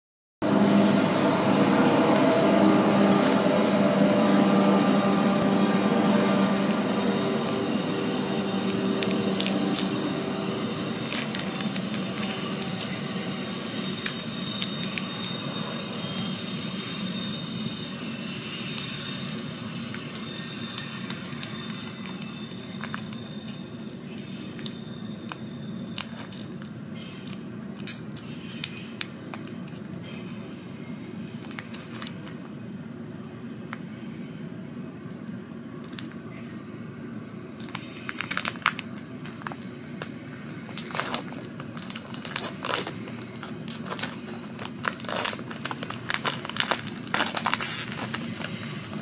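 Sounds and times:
foil wrappers crinkling: 6.0s - 15.7s, 16.9s - 30.0s, 37.6s - 49.0s
pack being pulled open: 8.7s - 15.4s, 37.6s - 39.6s, 40.7s - 49.0s.

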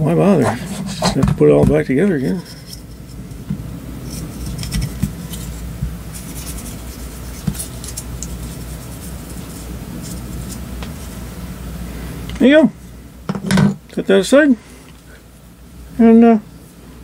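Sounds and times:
brush clicks and scrapes: 0.3s - 3.4s, 4.0s - 11.3s.

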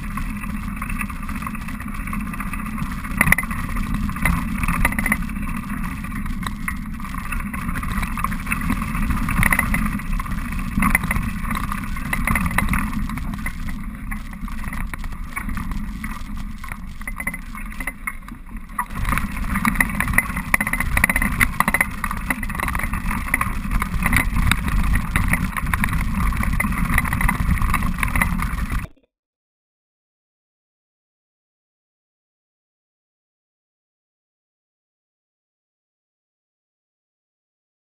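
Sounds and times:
bike rattling: 0.0s - 29.0s.

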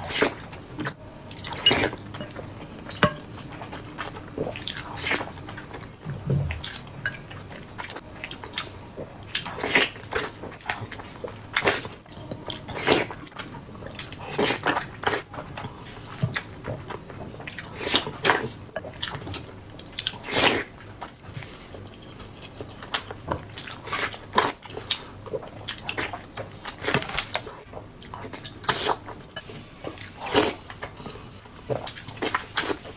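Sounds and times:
wet chewing and smacking: 0.0s - 32.9s.

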